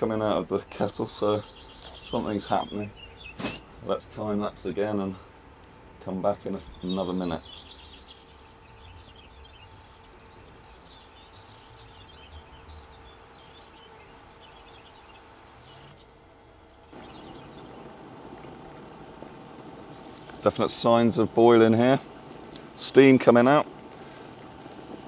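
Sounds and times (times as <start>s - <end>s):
faint birdsong chirping: 0.0s - 25.0s
low steady hum: 0.0s - 25.0s
electric kettle rushing: 16.9s - 25.0s.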